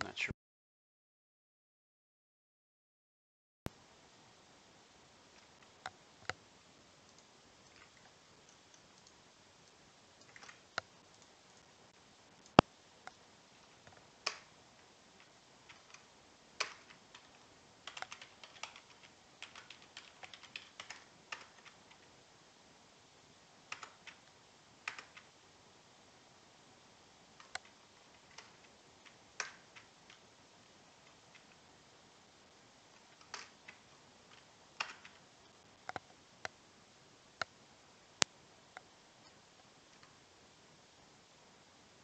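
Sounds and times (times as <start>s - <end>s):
computer keyboard typing: 7.1s - 9.2s, 10.2s - 11.7s, 12.4s - 14.5s, 15.2s - 22.1s, 23.7s - 25.3s, 27.4s - 30.3s, 31.0s - 31.6s, 32.9s - 36.1s.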